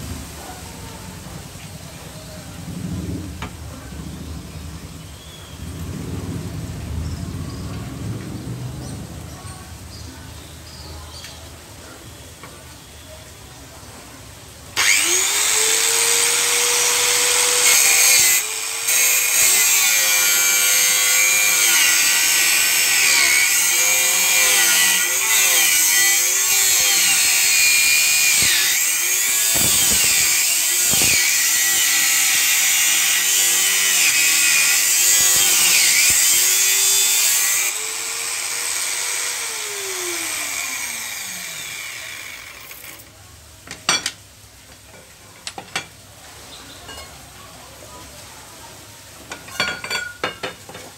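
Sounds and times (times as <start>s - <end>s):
angle grinder cutting steel tube: 14.8s - 43.1s
grinder winding down: 14.8s - 43.1s.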